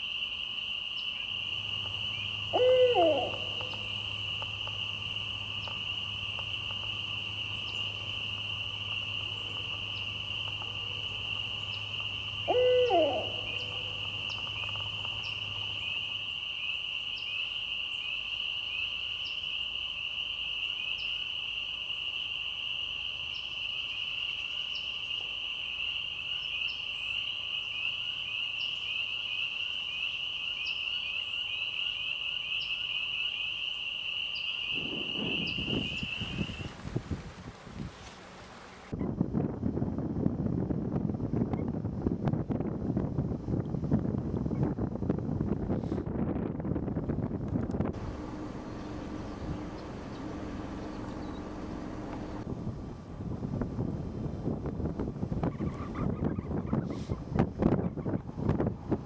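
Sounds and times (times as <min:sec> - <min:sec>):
chorus of insects: 0:00.0 - 0:39.0, 0:47.8 - 0:52.5
owl hooting: 0:01.5 - 0:19.4, 0:34.3 - 0:36.8, 0:48.0 - 0:52.4.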